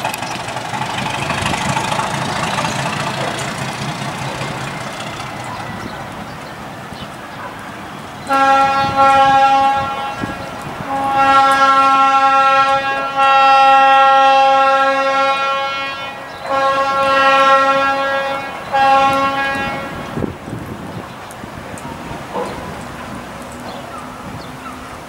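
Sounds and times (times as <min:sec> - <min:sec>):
train air horn blasts: 0:08.2 - 0:20.4.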